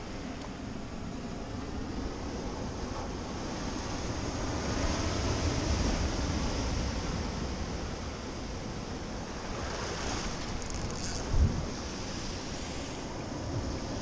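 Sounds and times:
wind buffeting microphone: 0.0 - 14.0
surf breaking against rocks: 9.3 - 13.9.

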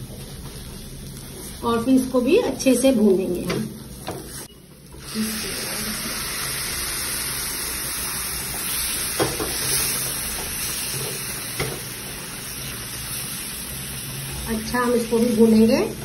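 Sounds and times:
milk sizzling in hot pan: 0.0 - 16.0.

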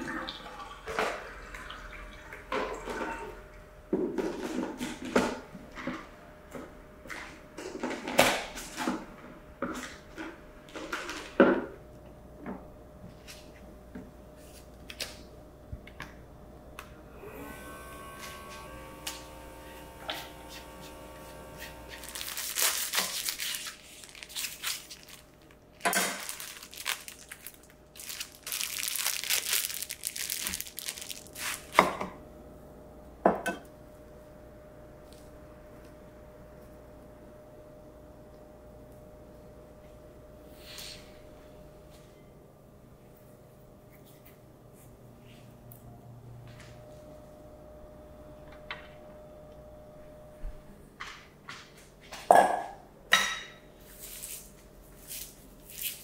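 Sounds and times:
handheld vacuum sealer running: 17.1 - 31.8
crinkling and tearing: 21.6 - 31.8.

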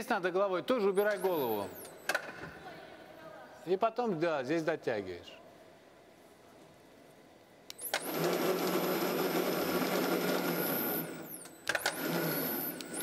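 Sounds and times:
electric motor whirring: 7.7 - 13.0.

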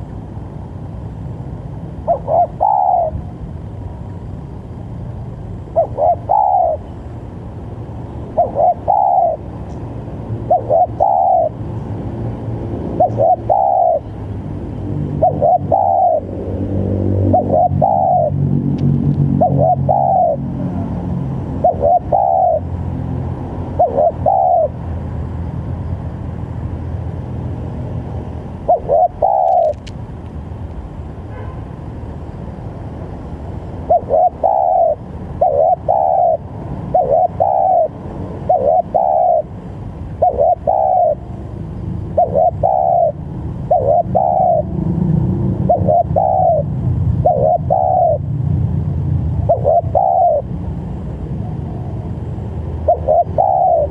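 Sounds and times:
low steady rumble: 0.0 - 53.9
dove cooing: 2.0 - 3.3, 5.7 - 7.0, 8.3 - 9.5, 10.4 - 11.6, 12.9 - 14.2, 15.0 - 18.6, 19.2 - 22.8, 23.6 - 24.8, 28.6 - 29.9, 33.8 - 39.6, 40.2 - 41.4, 42.0 - 44.9, 45.5 - 48.3, 49.4 - 50.5, 52.8 - 53.9.

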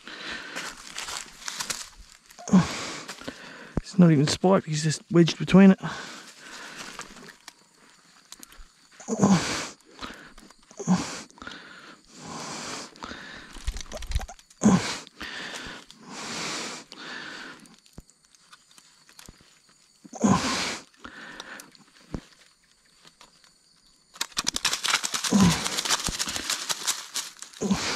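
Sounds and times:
person breathing and huffing: 0.0 - 1.6, 2.4 - 3.8, 5.8 - 7.3, 9.1 - 13.8, 14.6 - 17.8, 25.2 - 27.9.

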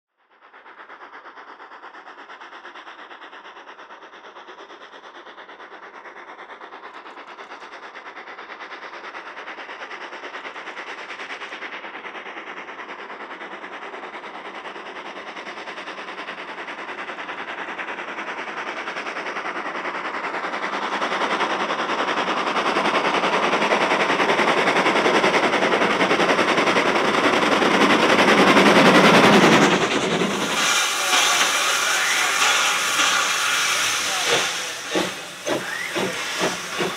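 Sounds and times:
steam locomotive exhaust beats: 0.2 - 36.9
train carriages rolling past: 21.4 - 36.9.

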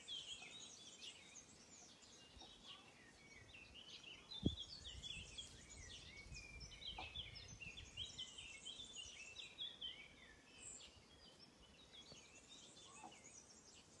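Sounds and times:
small birds chirping: 0.0 - 14.0
low rumble on microphone: 4.3 - 8.2.

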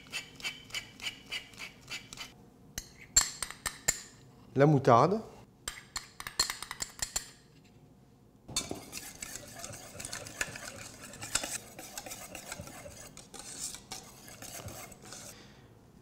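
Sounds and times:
wire whisk scraping metal bowl: 8.6 - 15.4.

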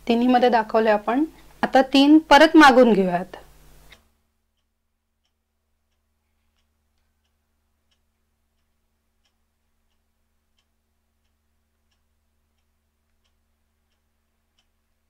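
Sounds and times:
low steady hum: 0.0 - 15.0
faint ticking: 3.3 - 15.0.

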